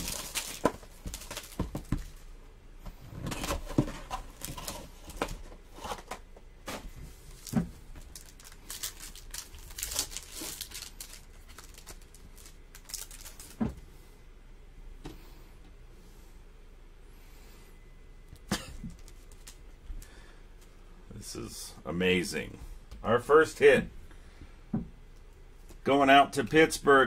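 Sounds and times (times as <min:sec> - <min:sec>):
foil wrapper crinkling and tearing: 0:00.0 - 0:02.2, 0:07.3 - 0:13.6.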